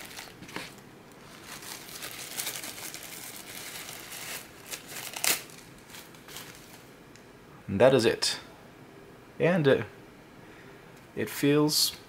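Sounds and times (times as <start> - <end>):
plastic wrap crinkling: 0.0 - 6.9
sharp wrap crackle: 0.0 - 6.9.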